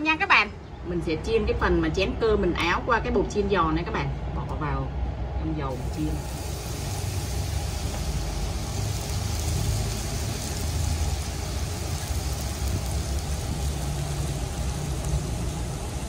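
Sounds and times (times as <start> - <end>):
rice sizzling in hot oil: 5.7 - 16.0.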